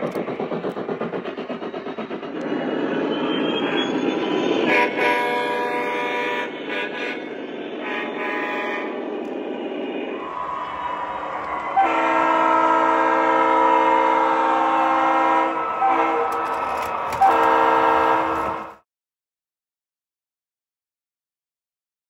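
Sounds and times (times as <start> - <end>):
model locomotive rumbling: 0.0 - 18.8
model locomotive horn chords: 4.7 - 7.2, 11.7 - 18.8.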